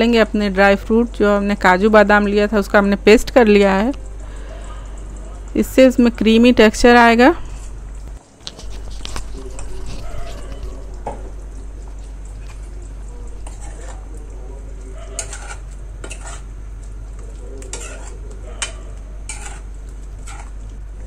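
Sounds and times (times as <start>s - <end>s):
spoon scraping and clinking in pan: 15.1s - 16.5s, 17.7s - 20.6s.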